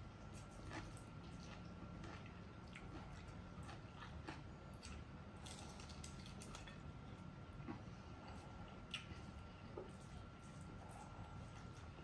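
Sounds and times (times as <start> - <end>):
light clicks and taps of eating: 0.4 - 6.8.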